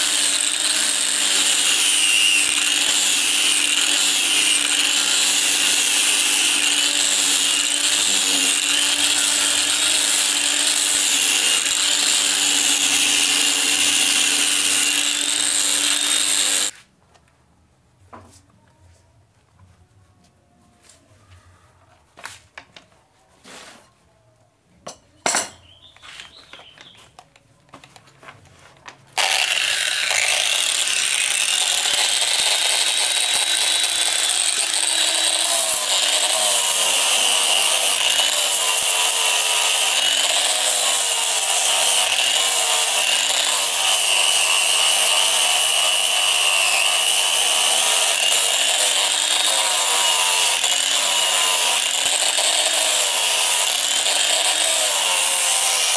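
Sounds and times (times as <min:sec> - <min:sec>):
angle grinder whining: 0:00.0 - 0:16.7, 0:29.2 - 0:55.9.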